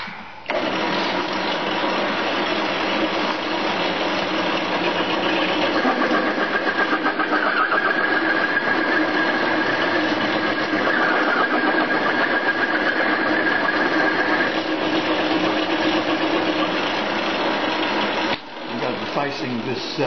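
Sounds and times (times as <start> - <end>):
mill cutter cutting steel: 0.5 - 19.7
lathe running: 0.5 - 20.0
high whine: 5.3 - 14.9.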